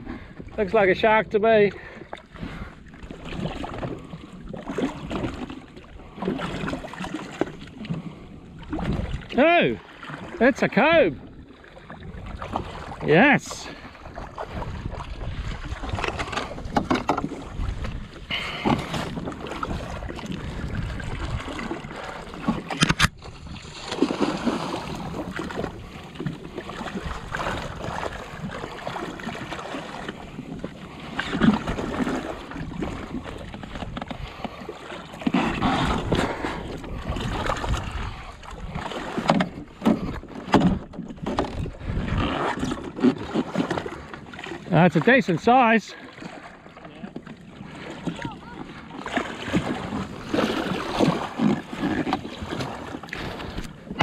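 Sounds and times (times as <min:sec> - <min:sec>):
water slapping against hull: 0:00.0 - 0:54.0
wind on microphone: 0:08.2 - 0:09.4, 0:11.2 - 0:13.1, 0:13.7 - 0:29.5, 0:30.2 - 0:44.1.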